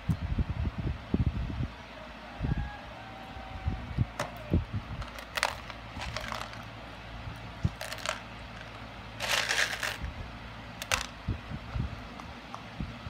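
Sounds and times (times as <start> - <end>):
jar of beads rattling: 5.1 - 6.7, 7.7 - 10.1, 10.8 - 11.1
beads clicking: 9.2 - 10.0.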